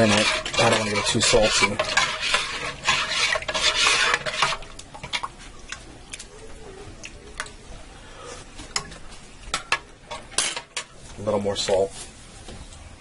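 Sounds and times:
metal spoon scraping pot: 0.0 - 5.2.

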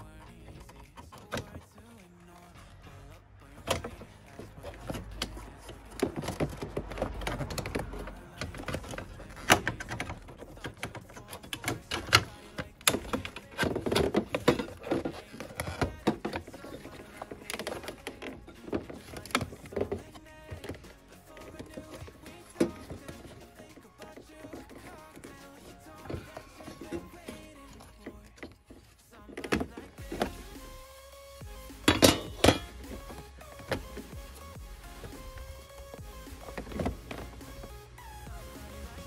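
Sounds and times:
hard plastic clicks and rattles: 3.6 - 30.6.

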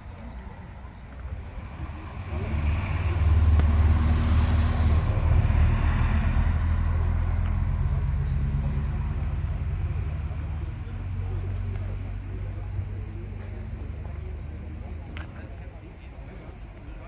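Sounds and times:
car engine rumbling: 0.0 - 15.6.

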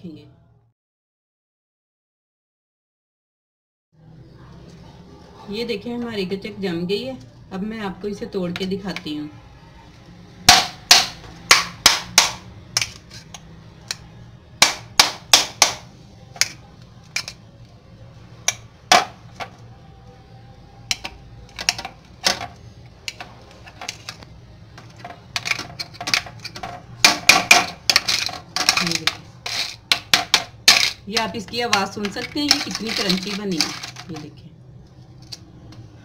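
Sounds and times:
pieces clattering in glass bowl: 31.8 - 34.2.

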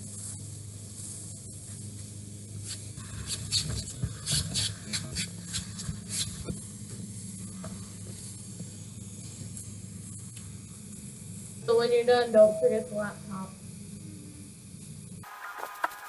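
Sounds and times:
low hum: 5.9 - 15.5
garden hose spraying: 15.2 - 16.0.

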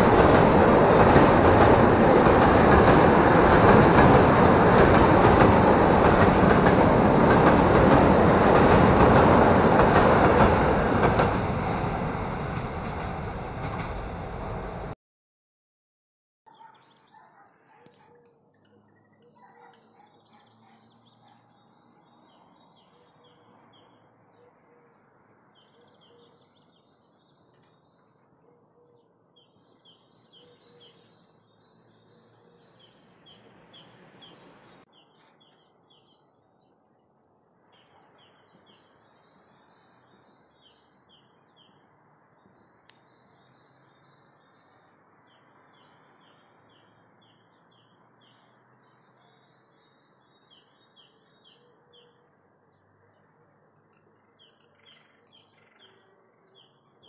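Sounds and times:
songbird chirping: 16.5 - 57.0.

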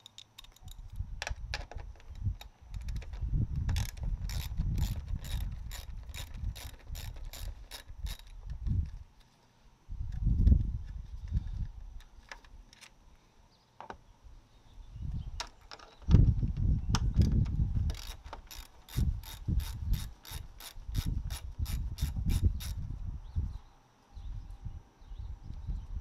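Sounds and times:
ratchet wrench clicking: 3.7 - 8.4, 17.9 - 22.8.

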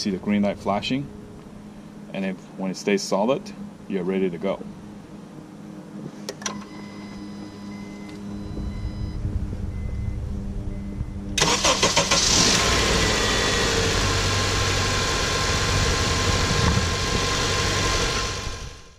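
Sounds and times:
faint beeping: 0.0 - 11.6
low hum: 0.0 - 18.9
car engine cranking and running: 11.2 - 18.9.

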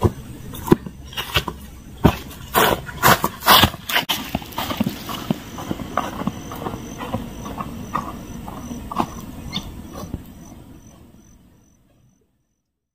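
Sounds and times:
insect chirping: 4.5 - 12.7.

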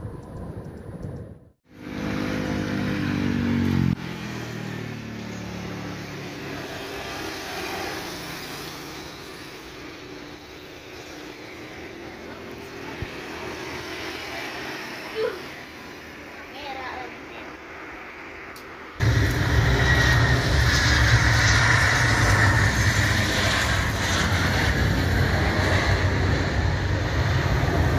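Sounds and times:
pitched engine hum: 0.0 - 17.0, 19.0 - 27.9
distant jet engine noise: 0.0 - 27.9.

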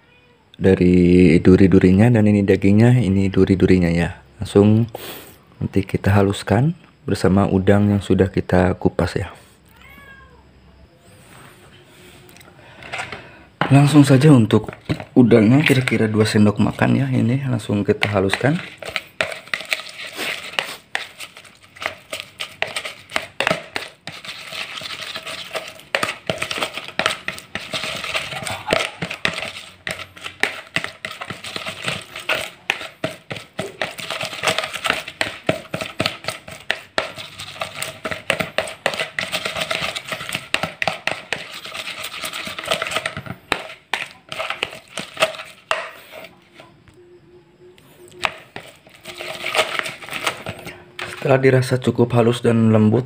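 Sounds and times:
plastic paddle scraping bowl: 12.7 - 46.7, 48.0 - 51.7.

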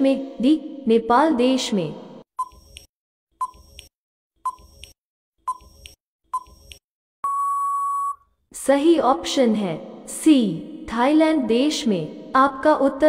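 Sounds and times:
long steady beep: 7.2 - 8.2
short beeps: 7.2 - 8.2.

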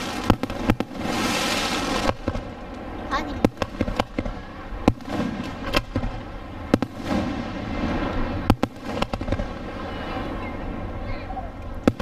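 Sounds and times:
fireworks bangs: 0.0 - 12.0
rumble and hiss of fireworks: 0.0 - 12.0.

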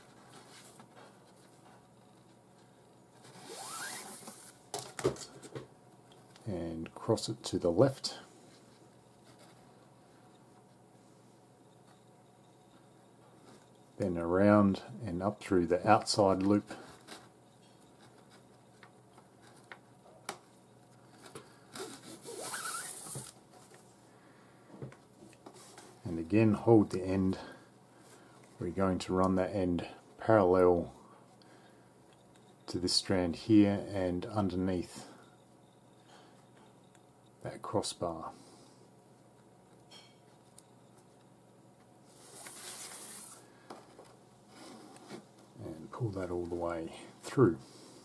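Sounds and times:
cord rubbing and squeaking: 3.2 - 4.6, 21.1 - 23.4.

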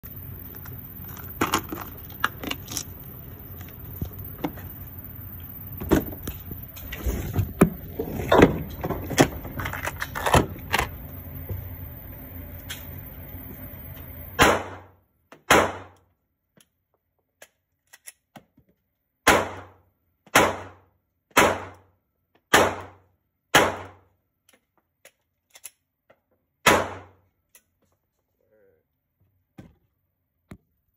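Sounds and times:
pistol shots: 14.4 - 16.0, 19.2 - 21.8, 22.5 - 24.0, 26.6 - 27.2.

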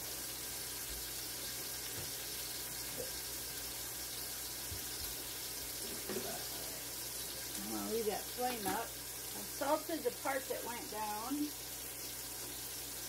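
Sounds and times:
meat sizzling in a pan: 0.0 - 13.0.

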